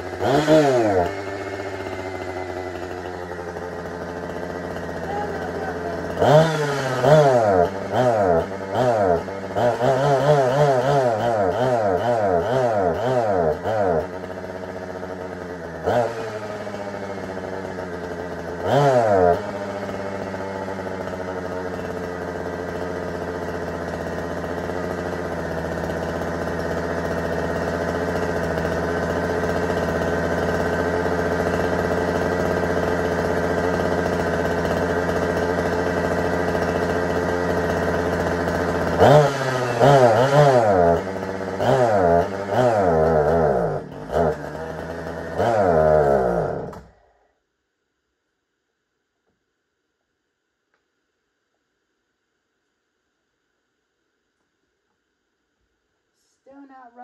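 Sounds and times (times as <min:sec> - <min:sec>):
chainsaw engine idling and revving: 0:00.0 - 0:47.2.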